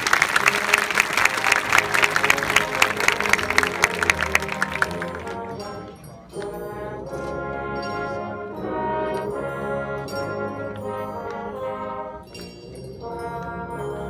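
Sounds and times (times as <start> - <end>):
applause from stands: 0.0 - 5.6
marching band brass chords: 0.0 - 14.0.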